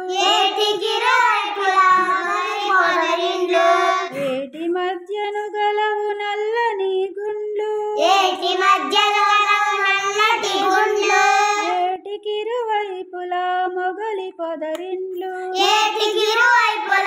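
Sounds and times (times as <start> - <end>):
child singing unaccompanied: 0.0 - 4.6, 8.0 - 12.0, 15.1 - 17.0.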